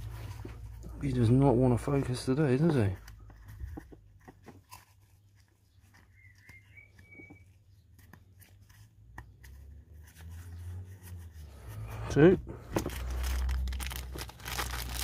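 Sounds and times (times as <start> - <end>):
faint squeak: 6.0 - 7.8.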